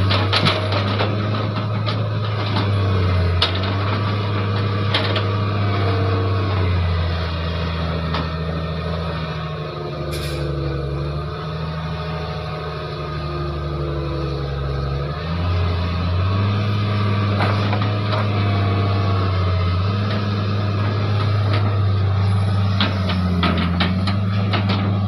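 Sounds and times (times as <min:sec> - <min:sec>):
excavator diesel engine labouring: 0:00.0 - 0:25.0
short hiss: 0:10.1 - 0:10.5.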